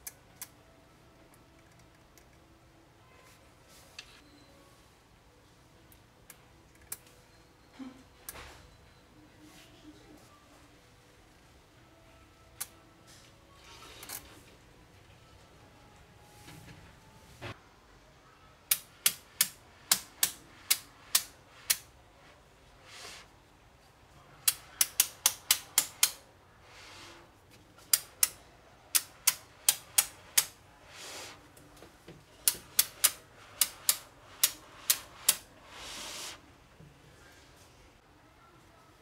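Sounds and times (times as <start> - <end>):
magnetic balls clicking together: 24.4 - 26.2, 27.8 - 30.6, 32.4 - 35.4
soft sliding scrapes: 34.6 - 36.4.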